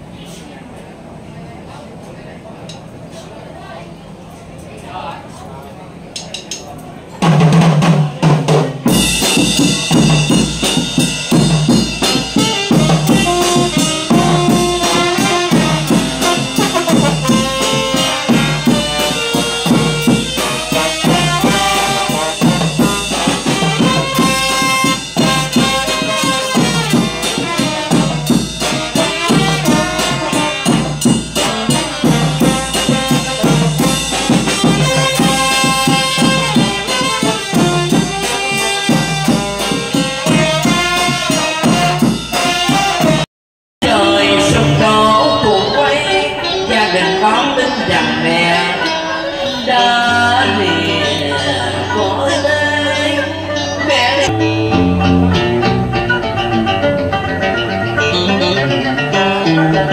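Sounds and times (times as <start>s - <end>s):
drum kit steady beat: 7.2s - 45.4s, 54.2s - 57.5s
brass band playing: 7.3s - 59.9s
saxophone and trumpets melody: 8.9s - 59.9s.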